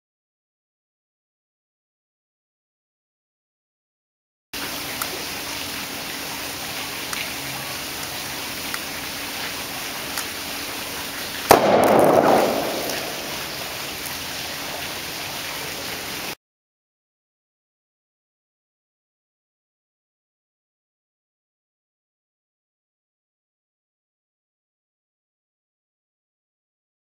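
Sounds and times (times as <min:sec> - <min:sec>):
plastic bottle bursting with bang: 0:11.5 - 0:13.7.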